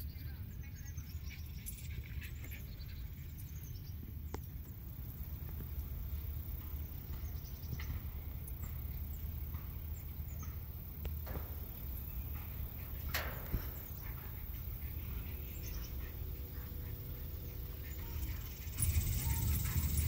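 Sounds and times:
steady low rumble: 0:00.0 - 0:20.0
faint high chirps: 0:06.1 - 0:20.0.

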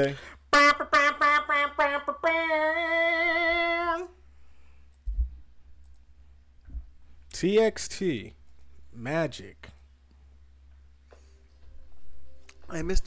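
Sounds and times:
soft low thump: 0:05.1 - 0:05.4, 0:06.6 - 0:07.0.

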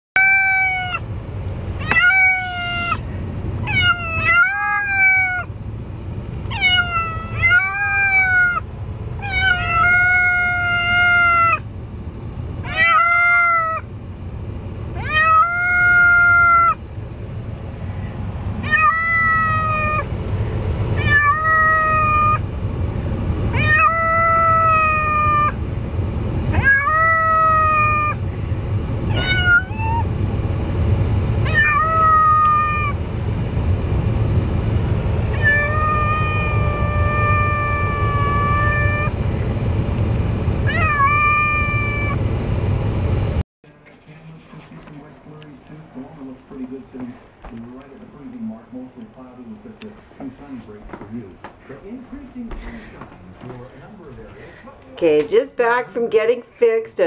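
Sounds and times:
cat meowing: 0:00.2 - 0:01.0, 0:01.8 - 0:03.0, 0:03.6 - 0:05.5, 0:06.5 - 0:11.6, 0:12.6 - 0:13.9, 0:15.0 - 0:16.8, 0:18.6 - 0:20.1, 0:21.0 - 0:22.4, 0:23.5 - 0:25.6, 0:26.5 - 0:28.2, 0:29.1 - 0:30.1, 0:31.4 - 0:33.0, 0:35.3 - 0:39.2, 0:40.6 - 0:42.2.

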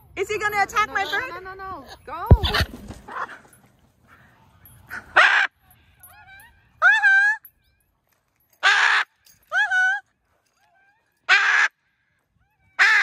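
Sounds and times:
dog whining yelps: 0:04.9 - 0:07.8.

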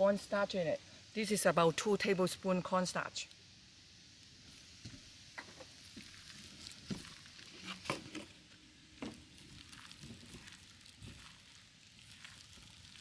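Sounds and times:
squishing of minced meat: 0:05.7 - 0:13.0.

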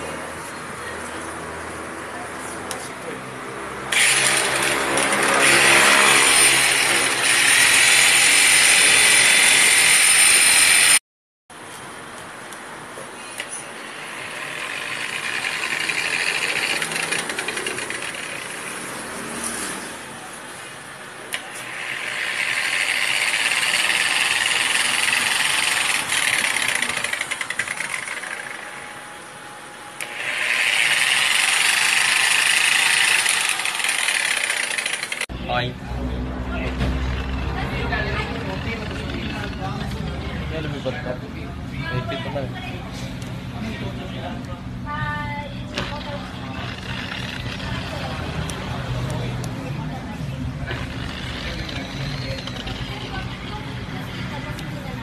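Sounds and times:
polisher motor whining: 0:13.9 - 0:18.7, 0:21.4 - 0:28.7, 0:30.0 - 0:35.2, 0:45.8 - 0:48.2, 0:50.6 - 0:53.6.

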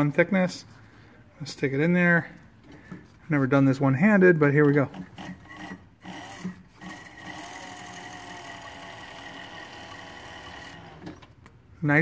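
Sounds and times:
leather skiver machine whine: 0:04.9 - 0:11.3.

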